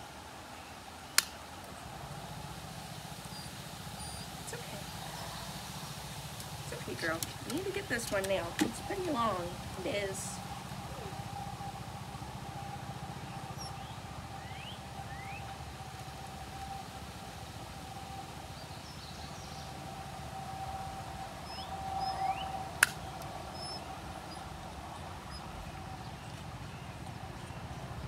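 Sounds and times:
faint steady hum: 0.0 - 28.0
bird chirps: 3.3 - 11.8, 13.2 - 15.6.

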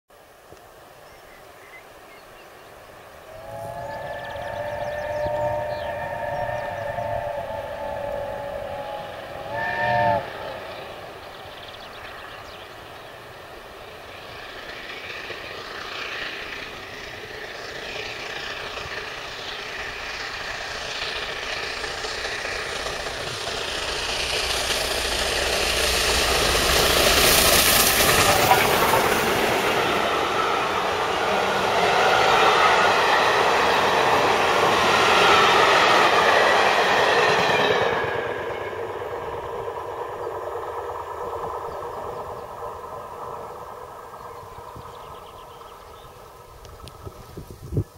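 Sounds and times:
steam locomotive exhaust beats: 3.0 - 47.9
wheels clattering on rails: 10.8 - 31.3.

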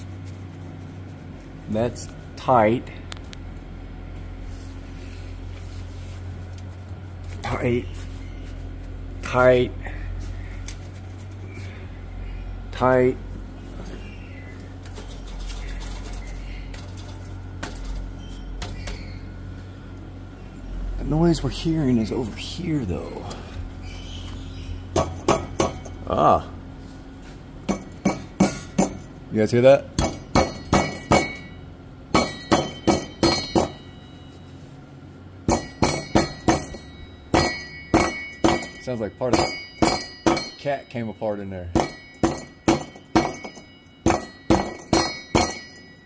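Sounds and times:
hammer tapping on metal: 25.0 - 26.0, 27.7 - 29.1, 30.0 - 33.9, 35.5 - 40.8, 41.7 - 46.0.

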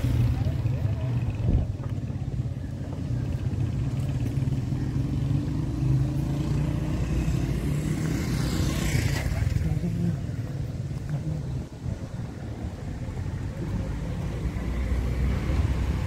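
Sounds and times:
car and motorcycle engines: 0.0 - 16.0
vehicle passing close: 3.6 - 10.3.

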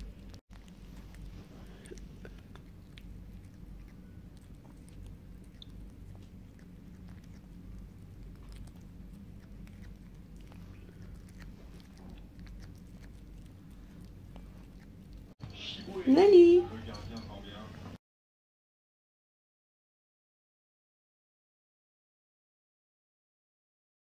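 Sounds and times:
kitten chewing: 0.0 - 17.9.

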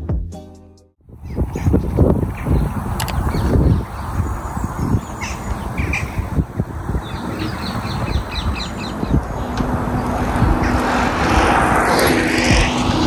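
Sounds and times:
wind rumble on microphone: 1.0 - 13.0
wild birds calling: 1.2 - 11.5.

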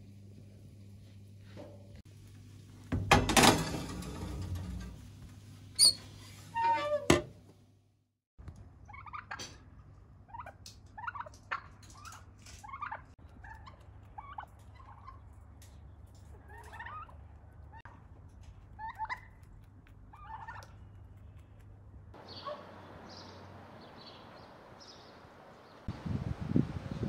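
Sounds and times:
turkeys calling: 8.9 - 9.6, 10.3 - 15.4, 16.1 - 18.0, 18.7 - 19.4, 20.1 - 20.8, 22.2 - 25.2.

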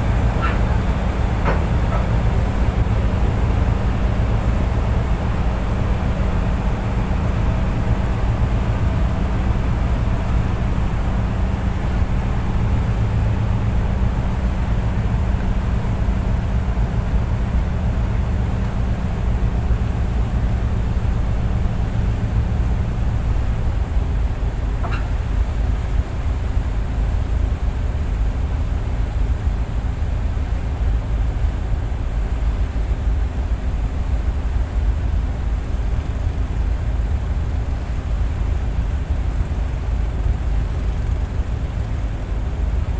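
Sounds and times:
diesel engine droning: 0.0 - 27.3
wind and water hiss: 0.0 - 42.9.

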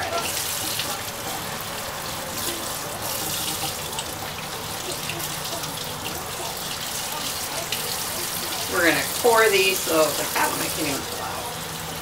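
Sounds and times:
tap water splashing in a sink: 2.4 - 11.1.

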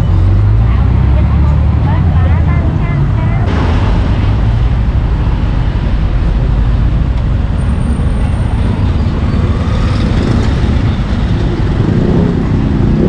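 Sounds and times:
street traffic noise: 0.0 - 13.0
constant low rumble: 0.6 - 12.9
motorbike engines running: 5.9 - 13.0.

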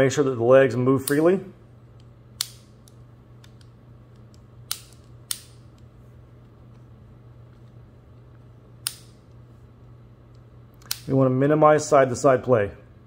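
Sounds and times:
low steady hum: 0.0 - 13.0
sharp metal clicks: 2.4 - 5.8, 8.8 - 9.2.

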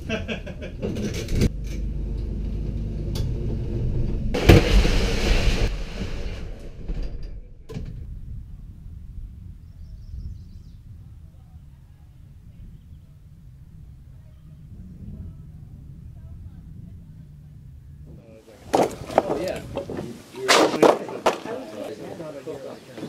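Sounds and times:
trailer door rumbling and clattering: 0.7 - 8.4
loud scraping rush: 0.8 - 7.4
sharp knock: 4.4 - 6.4.

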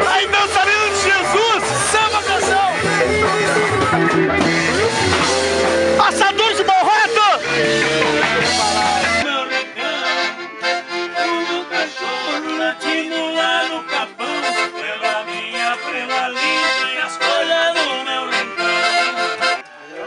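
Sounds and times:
piano accordion playing a tune: 9.2 - 20.0.

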